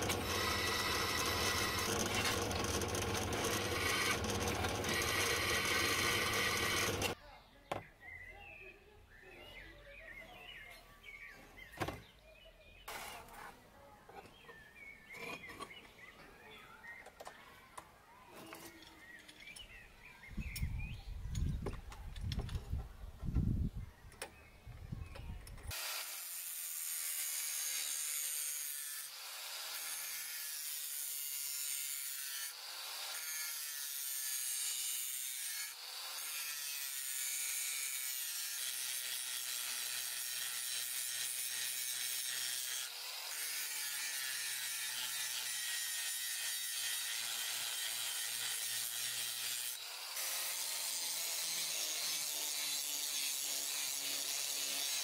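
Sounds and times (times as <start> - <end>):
angle grinder grinding steel: 0.0 - 7.2, 25.7 - 55.0.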